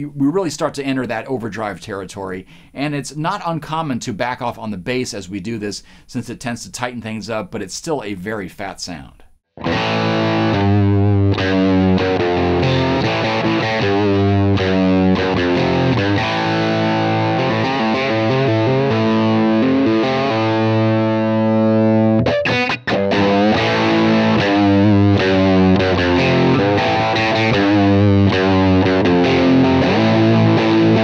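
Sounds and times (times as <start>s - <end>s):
distorted electric guitar: 9.6s - 31.0s.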